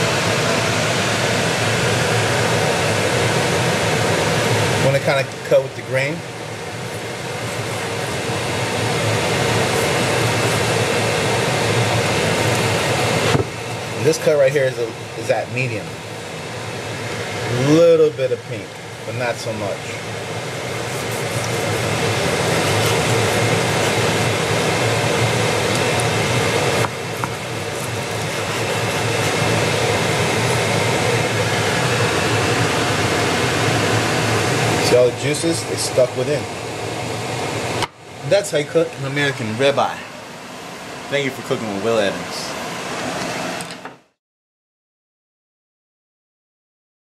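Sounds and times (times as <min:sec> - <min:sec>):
fan running: 0:00.0 - 0:44.2.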